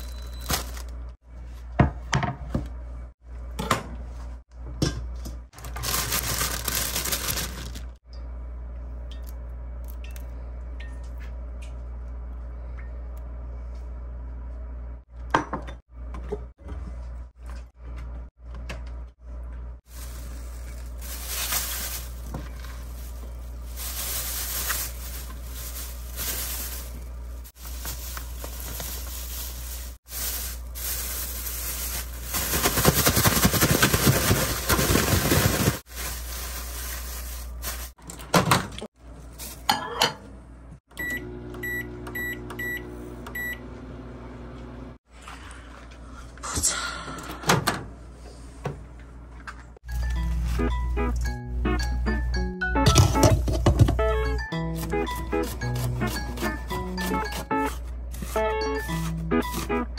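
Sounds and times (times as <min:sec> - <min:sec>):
microwave control beeps: 0:00.0 - 0:00.7, 0:40.9 - 0:43.7
plastic bag rustling: 0:00.0 - 0:01.0, 0:05.6 - 0:08.0, 0:19.9 - 0:38.0
bag shaken hard: 0:27.6 - 0:36.2.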